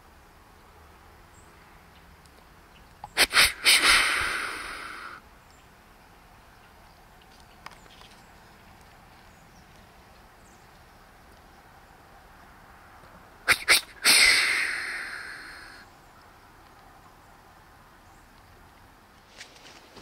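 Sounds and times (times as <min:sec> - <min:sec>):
blast of breath: 0:03.1 - 0:05.2, 0:13.5 - 0:15.9.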